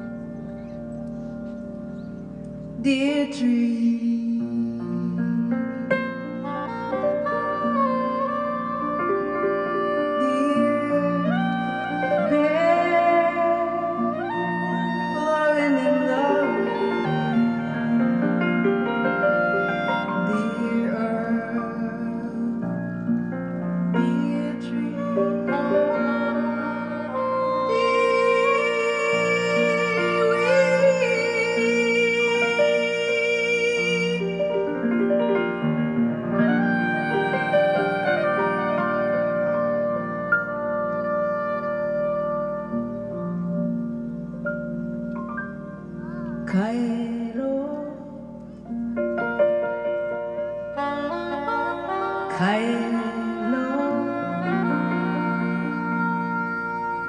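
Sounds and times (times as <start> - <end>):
woodwind playing long notes: 0.0 - 2.7, 4.6 - 46.5, 49.0 - 57.0
grand piano chords: 0.0 - 57.0
soprano saxophone: 0.0 - 57.0
woman singing: 2.8 - 5.9, 8.9 - 23.0, 23.9 - 35.0, 46.4 - 48.6, 51.0 - 57.0.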